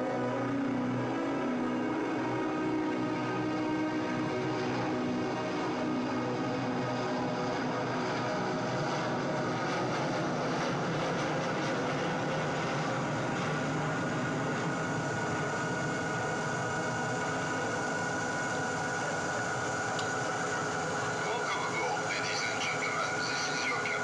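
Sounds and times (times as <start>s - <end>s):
jet engine over loudspeakers: 0.0s - 24.0s.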